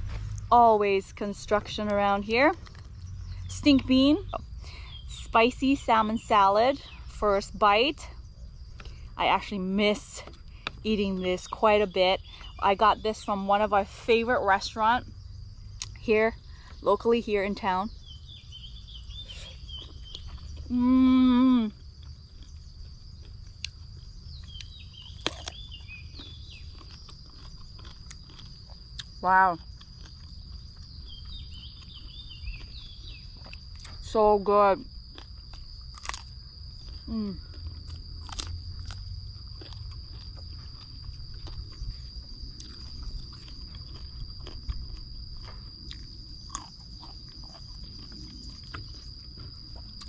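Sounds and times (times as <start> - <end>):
low rumble: 0.0 - 13.1
high insect drone: 0.0 - 50.0
person chewing crunchy vegetables: 1.8 - 3.6, 18.2 - 34.2, 34.8 - 50.0.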